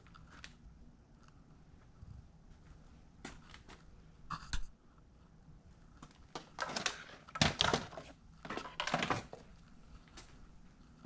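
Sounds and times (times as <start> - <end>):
objects clattering on concrete floor: 6.4 - 9.5.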